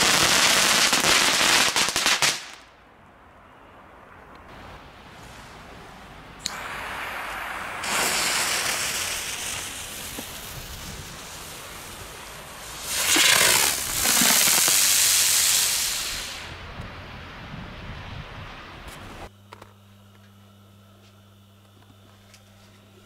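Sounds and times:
sharp crack: 0:01.9 - 0:02.8, 0:12.8 - 0:16.5
firework hissing: 0:06.4 - 0:16.7.

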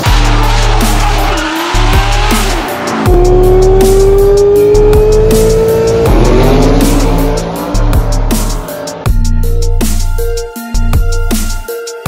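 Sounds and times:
car sounds: 0:00.0 - 0:11.6
electronic music with heavy bass: 0:00.0 - 0:12.0
long rising tone: 0:02.4 - 0:09.8.

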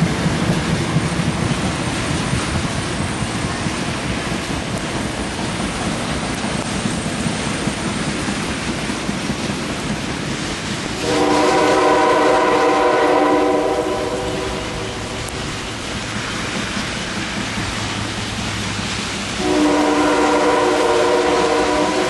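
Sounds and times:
train rushing by: 0:00.0 - 0:22.0
locomotive horn blast: 0:11.0 - 0:15.4, 0:19.4 - 0:22.0.

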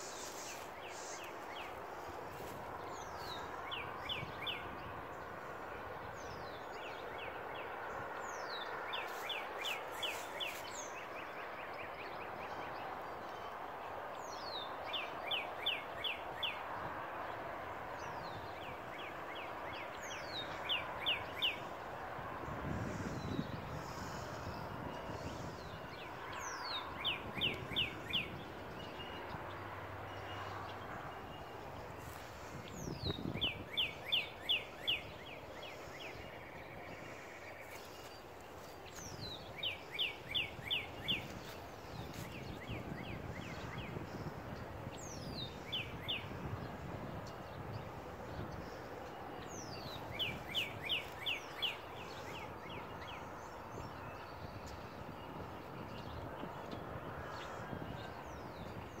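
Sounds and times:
outdoor background hiss: 0:00.0 - 0:03.8
songbird singing: 0:00.0 - 0:59.0.

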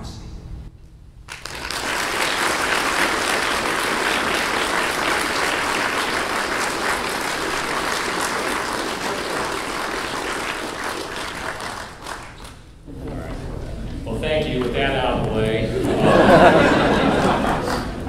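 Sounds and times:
audience applauding: 0:01.3 - 0:12.8, 0:15.8 - 0:18.0.

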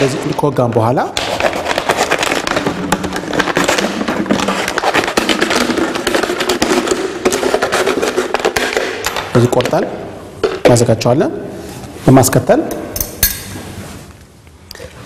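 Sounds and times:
plastic bottle crackling: 0:00.0 - 0:10.8.

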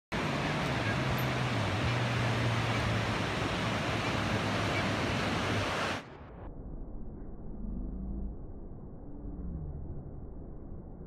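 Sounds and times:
ocean surf breaking: 0:00.1 - 0:06.1.

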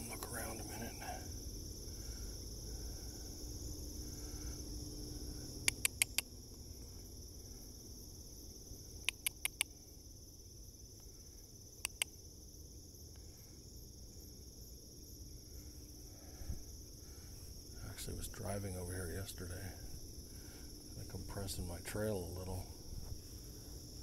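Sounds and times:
shrill insect chorus: 0:00.0 - 0:24.0
sharp ticks: 0:05.6 - 0:06.3, 0:09.0 - 0:09.7, 0:11.8 - 0:12.2.

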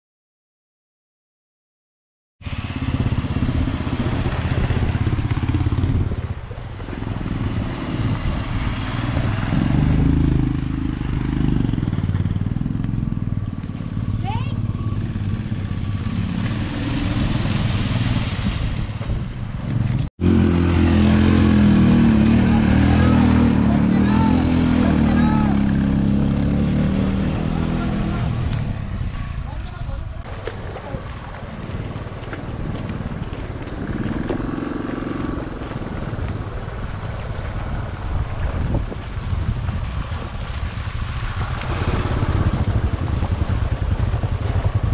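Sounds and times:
motorcycles riding through water: 0:02.4 - 0:44.9
motorcycle engines thumping: 0:02.7 - 0:44.9
flowing water rushing: 0:15.5 - 0:19.0, 0:30.2 - 0:42.9
motorcycle engine slow pulses: 0:28.4 - 0:44.9.

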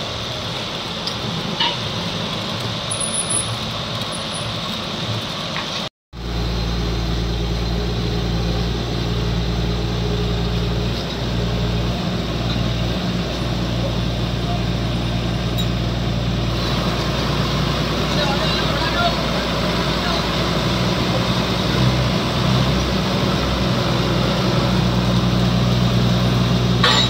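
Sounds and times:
drilling rig engine idling: 0:06.2 - 0:27.0.

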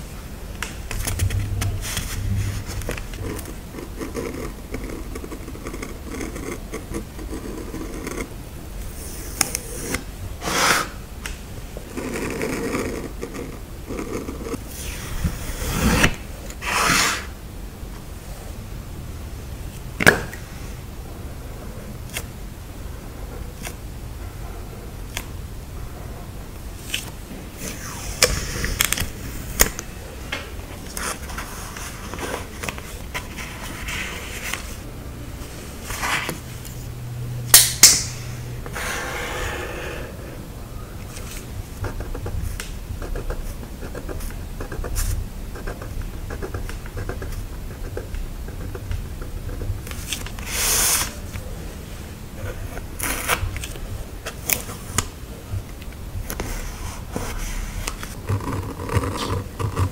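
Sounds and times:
paper scraping and rustling: 0:00.9 - 0:05.0, 0:30.8 - 0:34.8, 0:35.8 - 0:36.6, 0:49.9 - 0:51.3.

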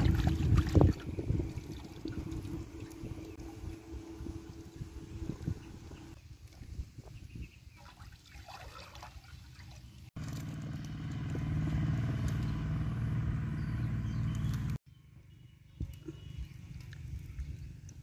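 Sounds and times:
small engine running: 0:10.2 - 0:14.8.

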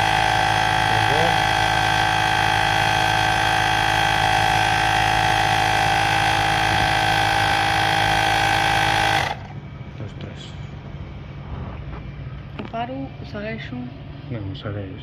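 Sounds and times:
electric tyre inflator pump droning: 0:00.0 - 0:09.6.

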